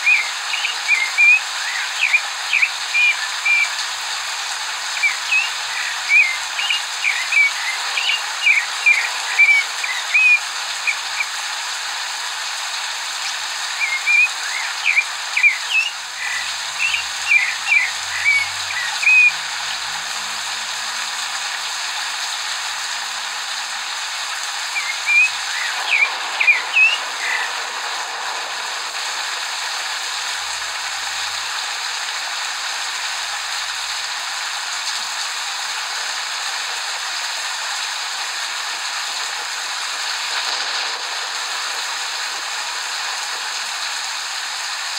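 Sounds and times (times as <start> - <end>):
thrush singing whistled notes: 0.0 - 21.4, 22.0 - 32.0
recorded rain hiss: 0.0 - 44.9.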